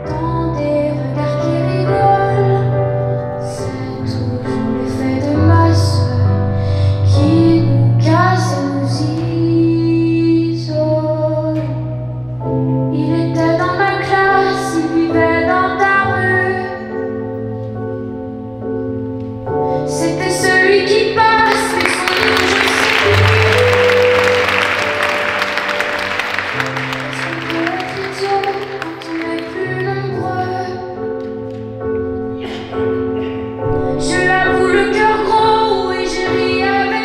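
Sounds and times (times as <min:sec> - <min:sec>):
woman singing over low held notes: 0:33.8 - 0:37.0.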